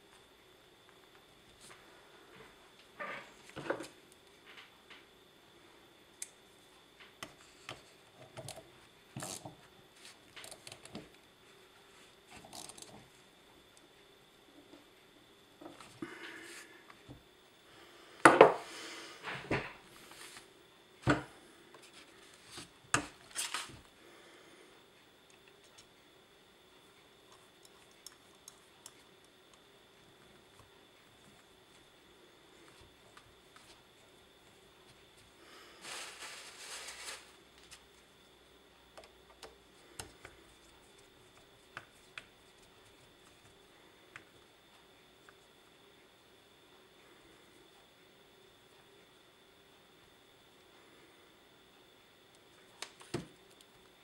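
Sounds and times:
soft rubbing: 0:35.6 - 0:37.8
scraping rustle: 0:35.8 - 0:37.8.

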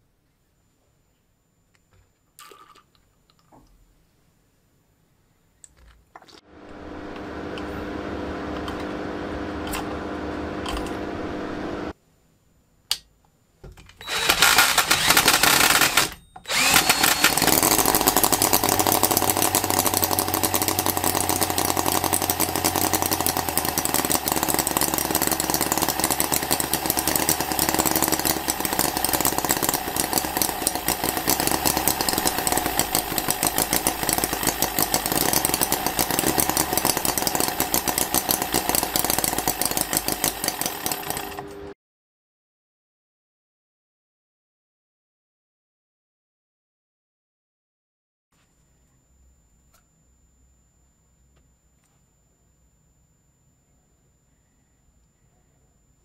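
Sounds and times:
model engine rapid mechanical chatter: 0:14.1 - 0:41.5.

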